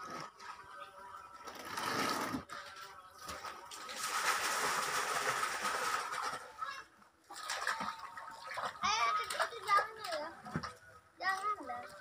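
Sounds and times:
water splashing: 3.2s - 12.0s.

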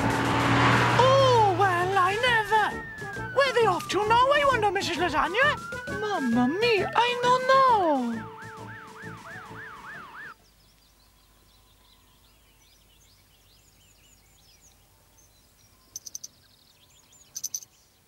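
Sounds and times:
fire engine siren warbling: 0.0s - 7.0s, 8.0s - 10.4s
faint birdsong: 10.2s - 18.0s
high clicking chirps: 15.9s - 16.5s, 17.3s - 17.7s.

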